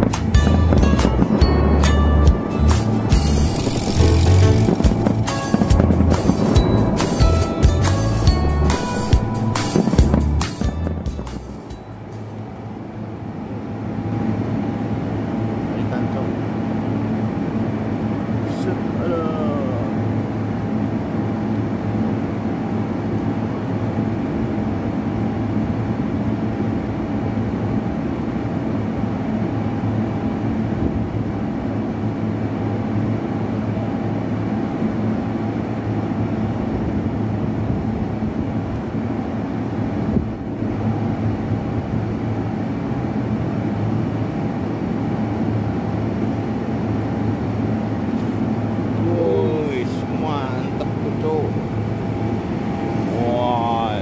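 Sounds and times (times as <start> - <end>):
motor running drone: 0.0 - 54.0.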